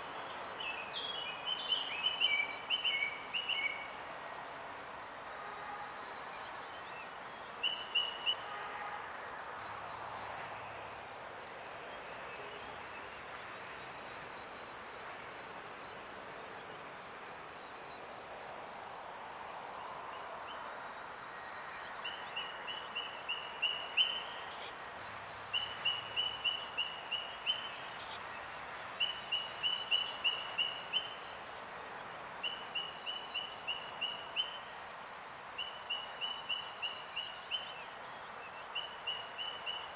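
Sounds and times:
insects stridulating: 0.0 - 39.9.

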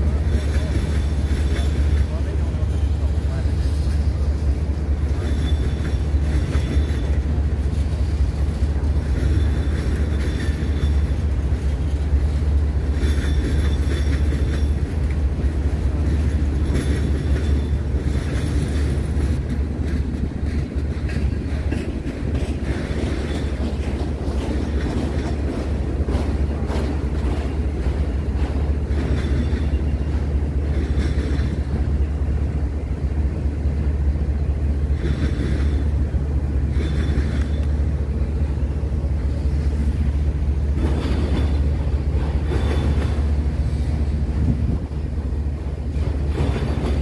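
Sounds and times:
train wheels rumbling on rails: 0.0 - 47.0
high wheel squeals: 9.1 - 11.3.

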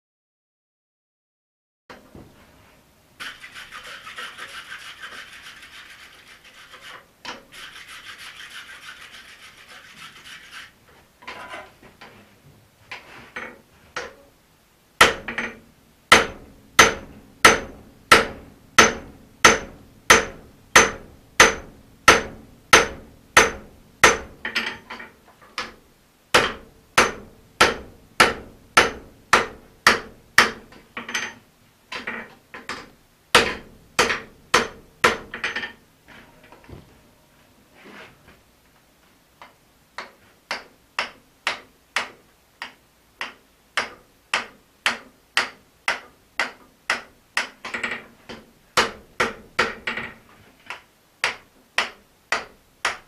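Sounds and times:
hammer striking anvil: 15.0 - 24.8.

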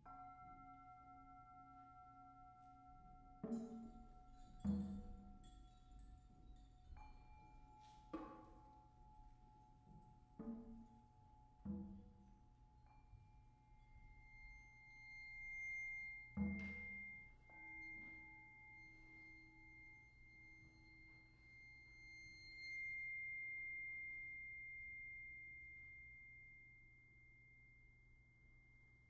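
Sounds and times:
high ringing percussion tones: 0.0 - 29.0
lower ringing tone: 12.8 - 29.0.

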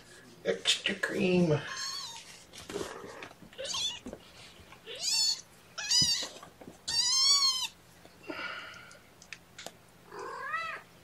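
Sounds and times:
kittens mewing: 1.7 - 4.2, 4.8 - 8.6, 10.1 - 10.9.

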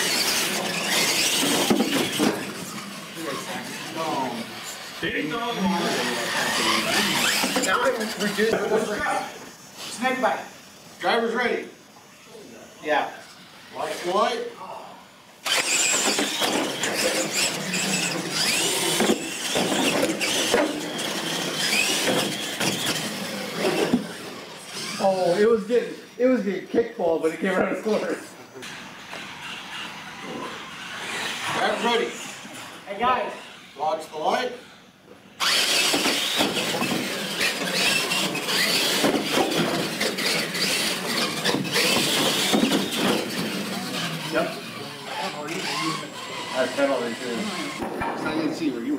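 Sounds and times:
toy truck electric motors whining: 0.0 - 14.3, 15.4 - 26.1, 27.8 - 47.9.

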